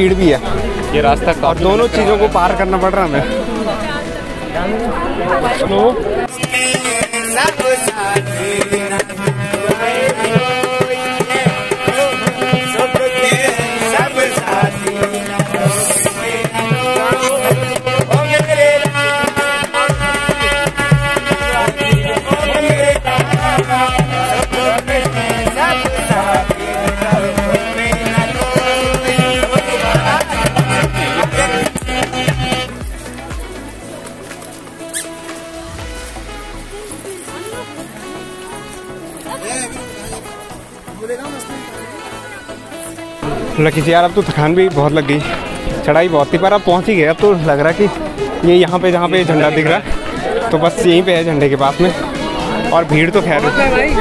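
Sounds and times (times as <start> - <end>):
harmonium chords: 6.2 - 54.0
hand drum rhythm: 6.3 - 37.8.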